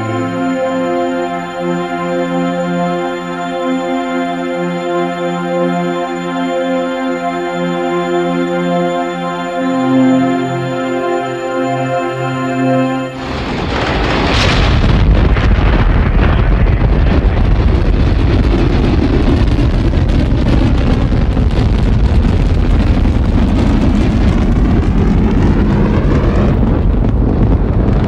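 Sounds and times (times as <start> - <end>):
rocket engines rumbling: 7.4 - 28.0.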